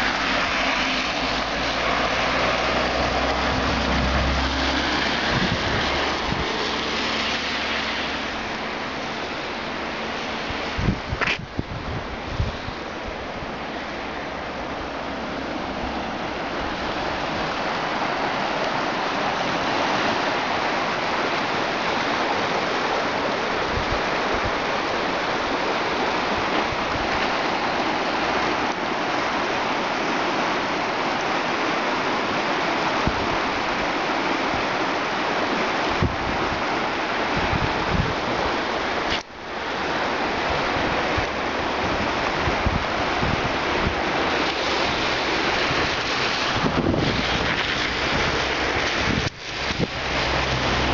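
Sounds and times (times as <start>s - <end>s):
river water rushing: 0.0s - 50.9s.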